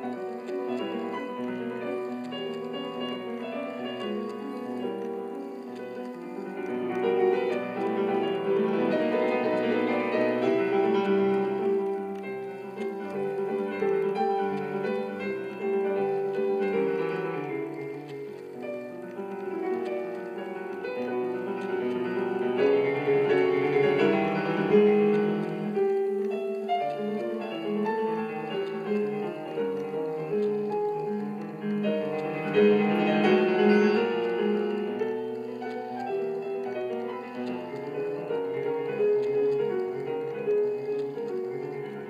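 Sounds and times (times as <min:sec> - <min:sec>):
piano melody over chords: 0:00.0 - 0:42.0.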